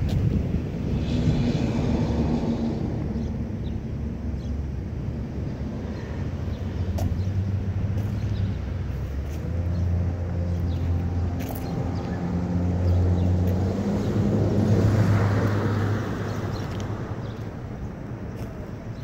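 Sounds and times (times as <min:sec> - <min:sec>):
low engine drone: 0:00.0 - 0:19.0.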